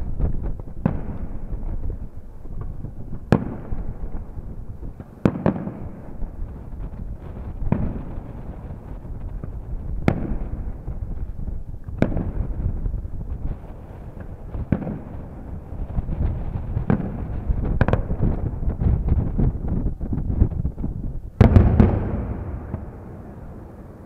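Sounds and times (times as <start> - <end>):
firework shells bursting: 21.4 - 24.0
steady low rumble: 21.4 - 24.0.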